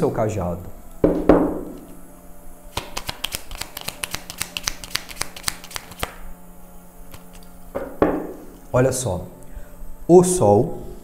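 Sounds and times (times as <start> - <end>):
cards being shuffled: 2.7 - 6.2
cards being handled: 2.8 - 6.2.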